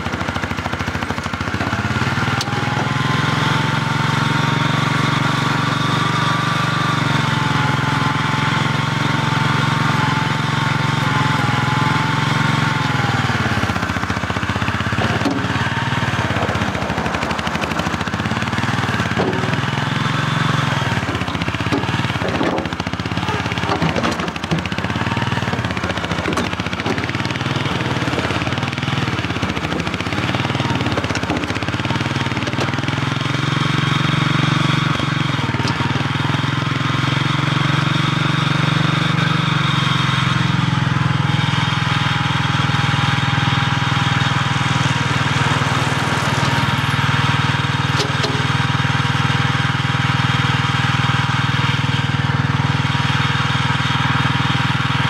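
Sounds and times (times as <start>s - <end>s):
small loader engine running: 0.0s - 55.0s.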